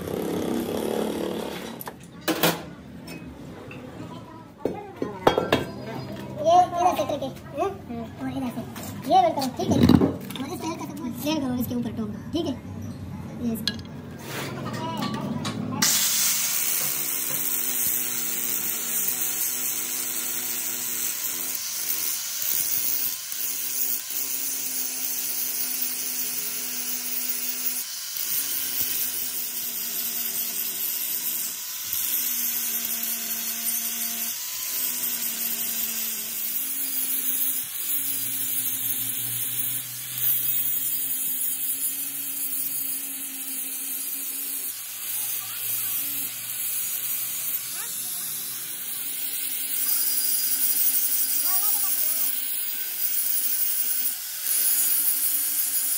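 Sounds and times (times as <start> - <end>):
angle grinder grinding metal: 13.6 - 55.9.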